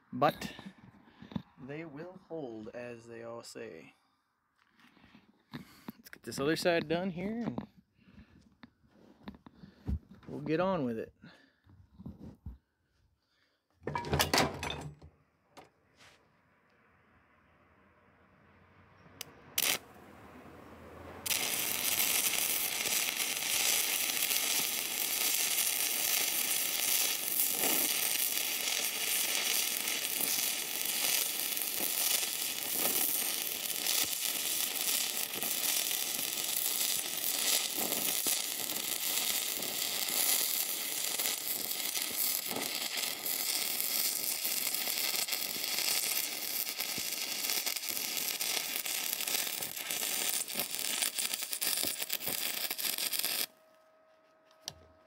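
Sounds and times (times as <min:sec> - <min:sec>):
welding arc crackling sizzle: 0:19.2 - 0:19.8, 0:21.2 - 0:53.6.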